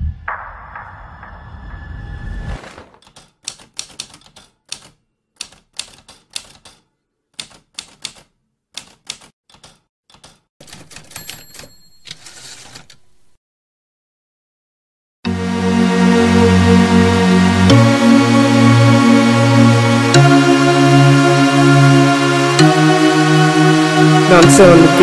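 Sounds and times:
typewriter keys striking: 3.0 - 6.8, 7.4 - 13.2.

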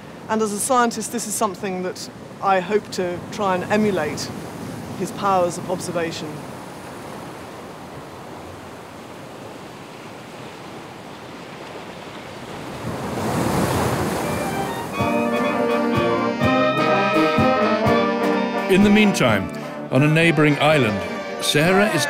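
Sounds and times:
surf washing against rocks: 0.0 - 17.4
brass band playing: 14.2 - 22.0.

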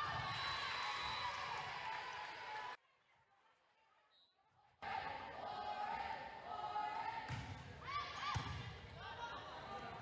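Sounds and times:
background voices in a hall: 4.8 - 10.0.

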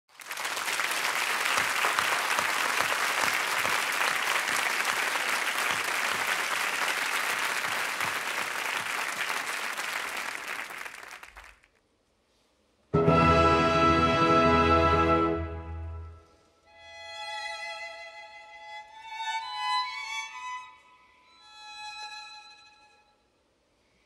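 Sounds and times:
audience applauding: 0.1 - 11.7.

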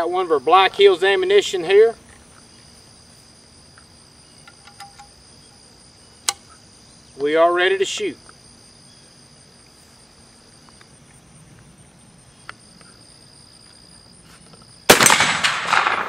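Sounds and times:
insects chirping: 0.0 - 16.0
rifle shot with echo: 14.9 - 16.0.

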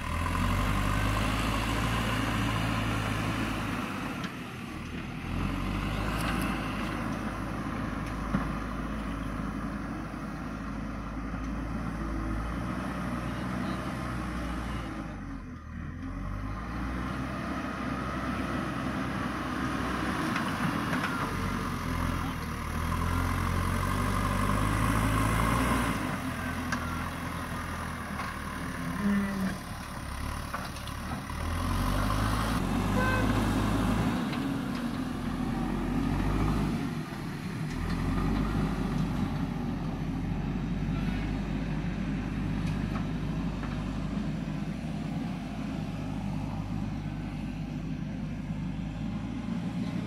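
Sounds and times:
diesel engine revving under load: 0.0 - 50.0.

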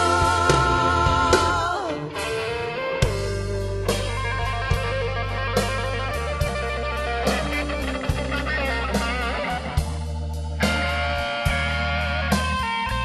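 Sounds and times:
bass line: 0.0 - 13.0
electric guitar lead: 0.0 - 13.0.

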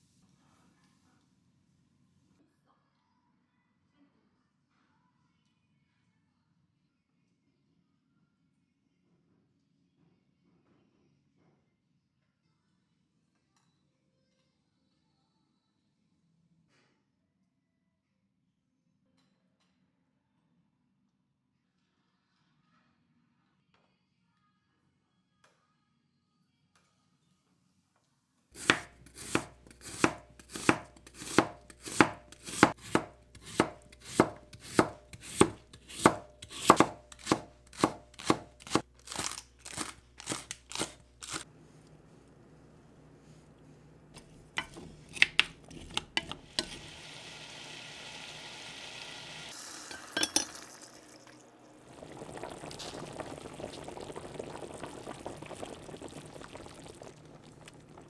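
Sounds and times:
knife chopping on wooden board: 28.6 - 41.4, 44.2 - 46.9
pot of water boiling: 28.6 - 43.5, 44.1 - 58.0.

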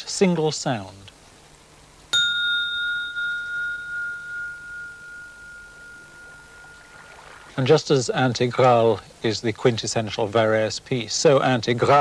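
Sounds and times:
glass ringing when struck: 2.1 - 7.6.

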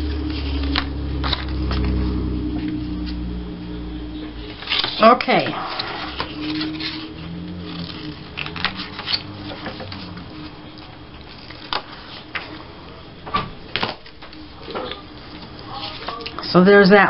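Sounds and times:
paper rustling: 0.0 - 2.0, 4.4 - 12.8, 13.7 - 16.5.

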